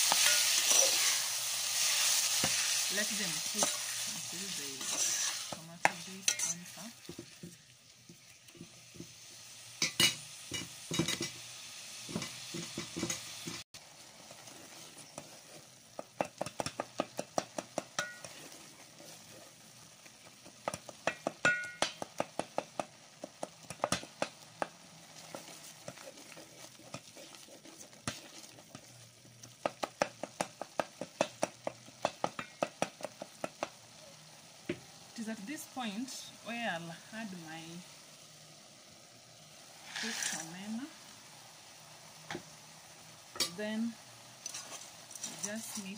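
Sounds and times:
tomatoes sizzling: 0.0 - 45.9
metal spoon scraping pot: 4.8 - 6.8.

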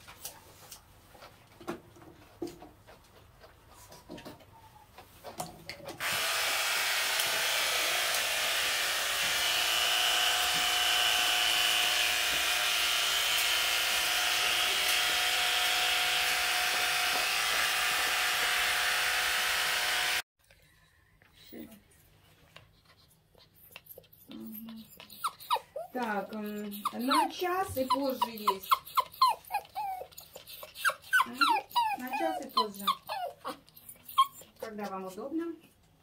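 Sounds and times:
electric grooming appliance whirring: 6.0 - 20.3.

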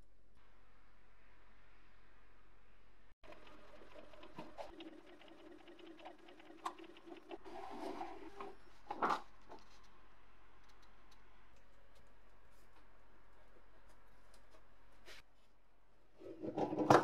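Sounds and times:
printer motor humming and clicking: 3.2 - 7.4.

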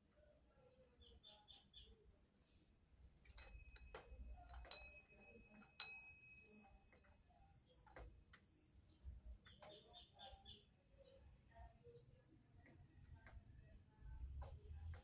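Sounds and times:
faint bird chirps: 0.6 - 2.1, 3.4 - 12.8.

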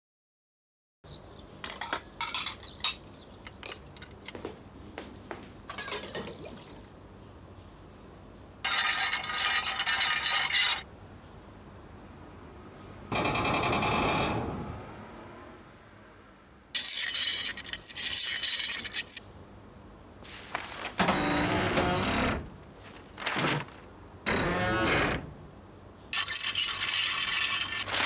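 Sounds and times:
dishes and cutlery clinking: 1.6 - 4.2, 5.7 - 6.4.

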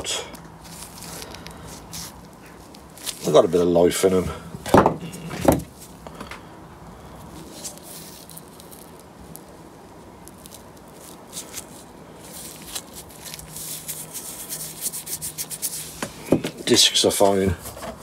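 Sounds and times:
faint steady hum: 0.0 - 18.0
brake pads clicking and rustling: 0.2 - 6.5.

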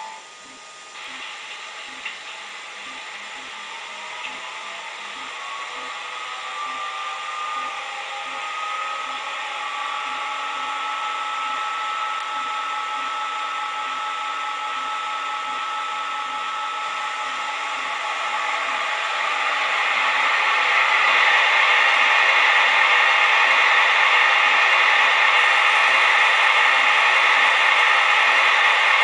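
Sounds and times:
fan hiss from small speaker: 0.0 - 29.0
whining electric locomotive tones: 0.0 - 29.0.

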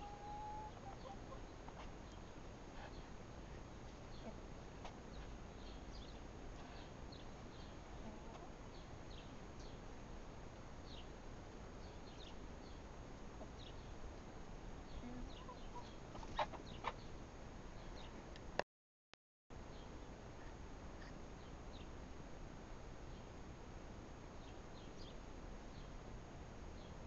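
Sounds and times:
young hens peeping: 0.0 - 9.8, 11.9 - 14.3, 14.9 - 18.2
faint steady hiss: 0.0 - 18.6, 19.6 - 27.0.

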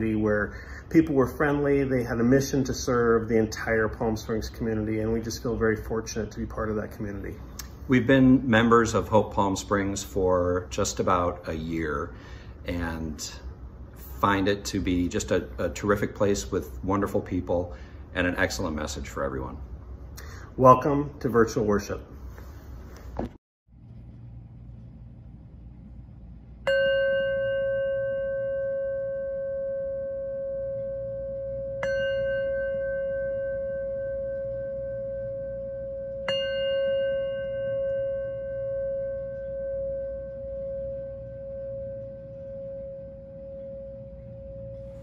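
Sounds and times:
singing bowl struck with mallet: 26.6 - 45.0.

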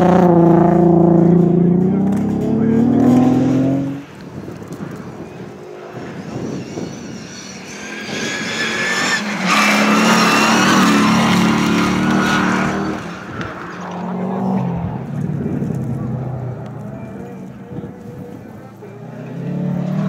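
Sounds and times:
car engine revving: 0.0 - 20.0
engine revving hard: 2.0 - 4.0.

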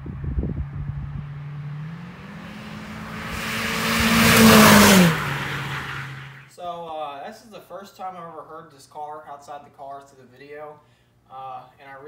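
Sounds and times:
car exhaust accelerating past: 0.0 - 6.5.

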